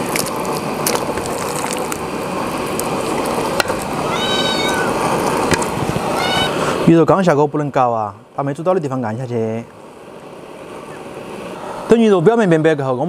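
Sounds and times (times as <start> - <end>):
broth simmering with hiss: 0.0 - 13.0
cat meowing: 4.0 - 5.1, 6.1 - 6.7.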